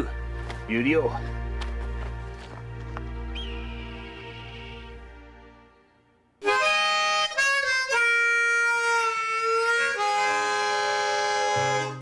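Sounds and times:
harmonica chords: 3.1 - 12.0.

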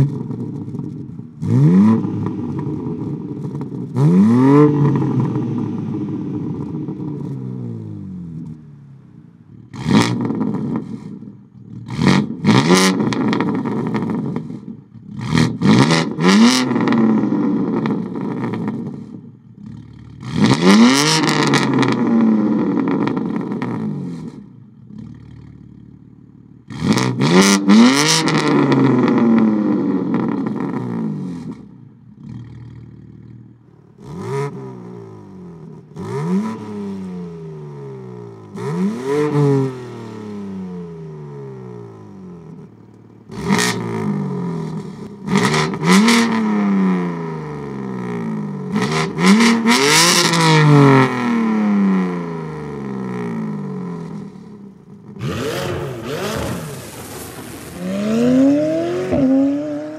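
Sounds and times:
car engine revving: 0.0 - 59.9
exhaust cracks: 53.2 - 59.9.

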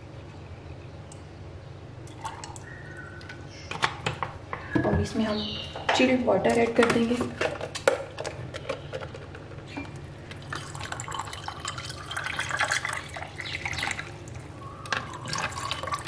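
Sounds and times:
water pouring over ice: 10.3 - 16.0.

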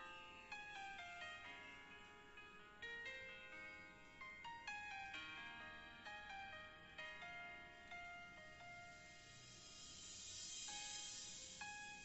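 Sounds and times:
faint slow background music: 0.0 - 12.0
soft hiss: 8.7 - 12.0.

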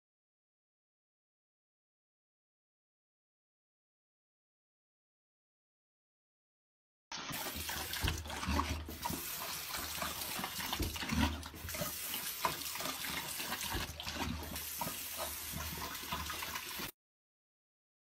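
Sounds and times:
faucet running into sink: 7.2 - 16.9
pet drinking splashes: 7.2 - 16.9.

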